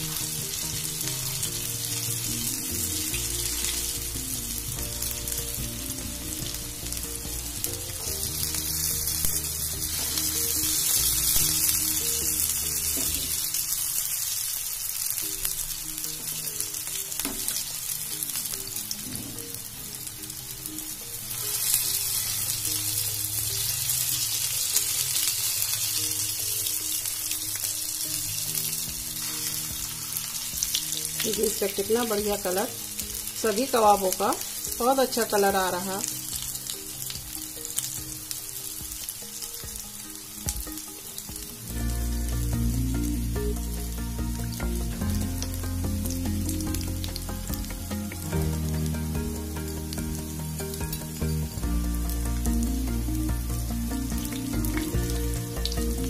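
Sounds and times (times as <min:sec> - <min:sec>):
hot oil sizzling: 0:00.0 - 0:56.0.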